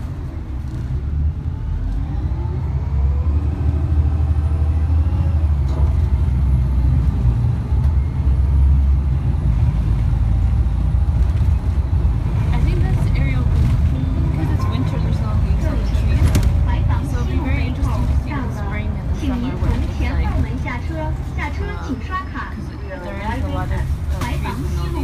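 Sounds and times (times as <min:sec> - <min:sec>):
bus engine rumble: 0:00.0 - 0:25.0.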